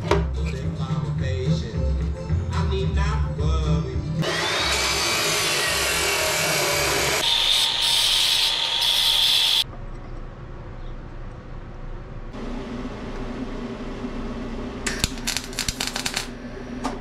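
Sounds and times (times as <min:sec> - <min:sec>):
angle grinder whining: 0:04.2 - 0:09.6
chop saw cutting steel: 0:04.2 - 0:09.6.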